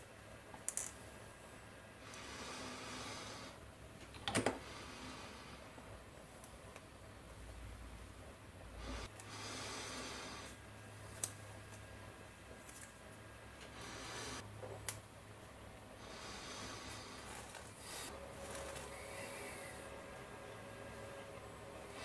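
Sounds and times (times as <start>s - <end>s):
plastic parts rubbing and rustling: 17.2s - 19.8s.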